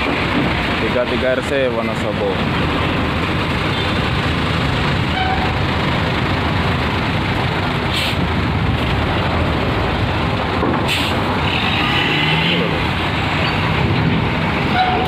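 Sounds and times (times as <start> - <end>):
diesel bus engines rumbling: 0.0 - 15.0
air brakes hissing: 7.9 - 8.3, 10.9 - 11.3.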